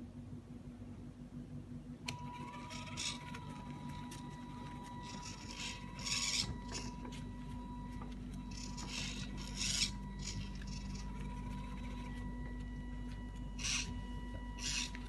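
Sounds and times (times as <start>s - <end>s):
small electric gear motors running: 2.1s - 15.0s.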